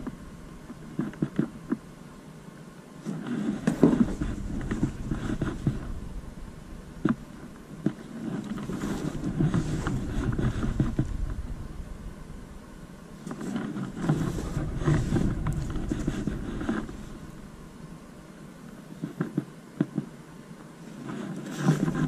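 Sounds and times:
cardboard box and cloth rustling: 3.0 - 6.0, 7.9 - 11.3, 13.3 - 17.4, 21.0 - 22.0.

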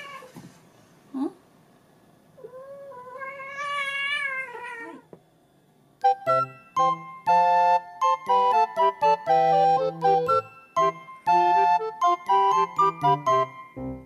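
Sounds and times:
cat meowing: 2.4 - 5.1
chiming music tones: 6.0 - 14.0.

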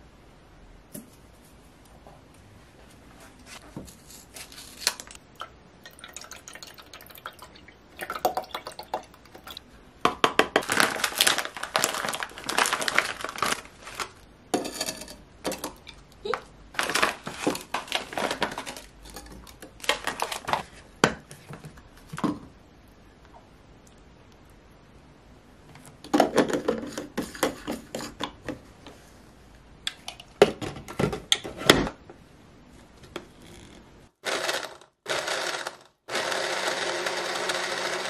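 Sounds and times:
milk pouring and splashing: 5.4 - 9.6
plastic bag rustling: 10.6 - 14.3, 15.5 - 20.9.

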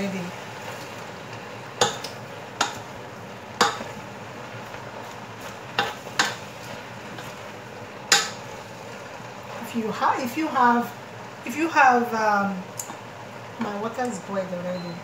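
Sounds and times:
wooden spoon stirring vegetables: 0.0 - 11.9
spoon knocking against pot: 1.8 - 2.8, 3.6 - 3.9.

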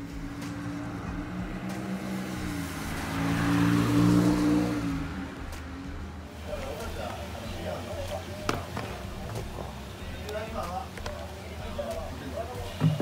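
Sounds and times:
vehicle engine passing: 0.0 - 10.1.

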